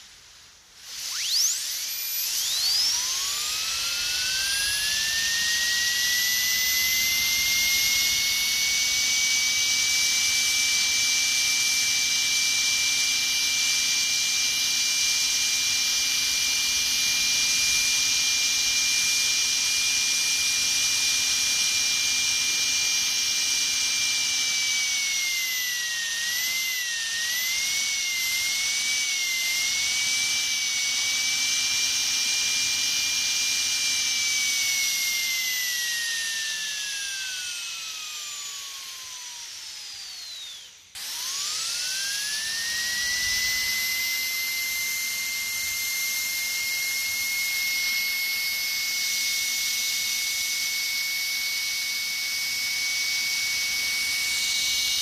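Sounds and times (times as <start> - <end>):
dentist's drill whining: 0.8 - 55.0.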